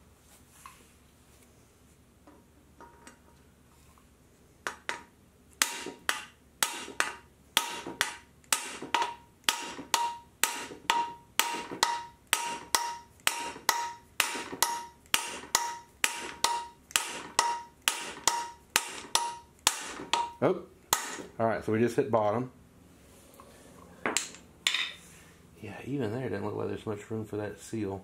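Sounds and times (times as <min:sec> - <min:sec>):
hammer striking steel bar: 0:05.6 - 0:21.3.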